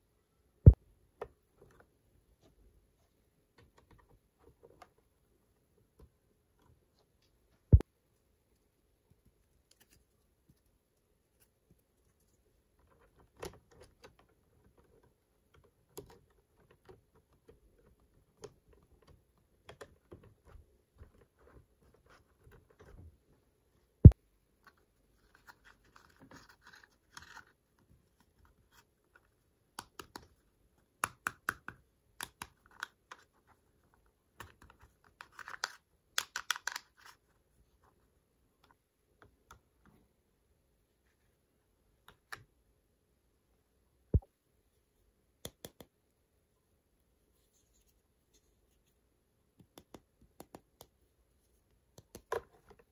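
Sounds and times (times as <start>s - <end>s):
plastic toy pieces clicking: 35.3s - 37.0s.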